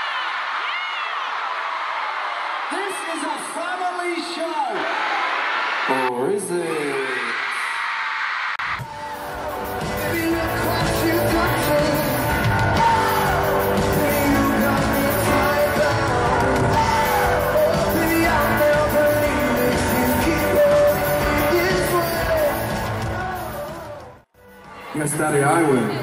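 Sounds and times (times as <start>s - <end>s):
fans yelling and screaming: 0.0s - 26.0s
live band with man singing: 8.8s - 24.2s.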